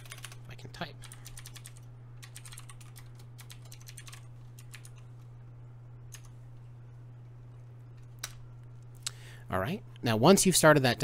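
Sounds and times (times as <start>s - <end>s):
computer keyboard typing: 0.0s - 0.4s, 1.0s - 5.0s, 6.1s - 6.3s
steady low hum: 0.0s - 11.0s.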